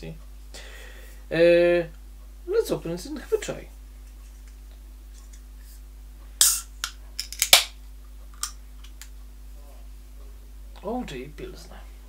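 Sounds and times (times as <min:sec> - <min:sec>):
can opening crack and hiss: 0:06.4 - 0:07.8.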